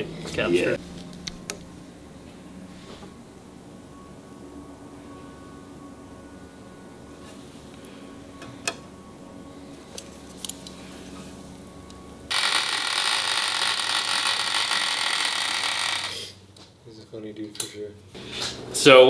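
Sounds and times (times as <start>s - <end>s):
milling machine whine: 3.1s - 16.2s.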